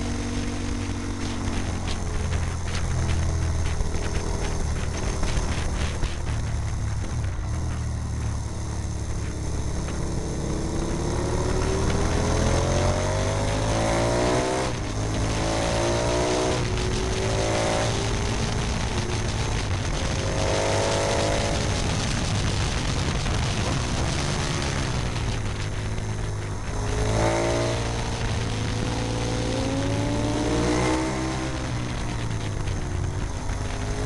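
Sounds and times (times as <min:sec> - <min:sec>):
motorcycle engine accelerating: 0:00.0 - 0:34.0
wind rush on microphone: 0:00.0 - 0:34.0.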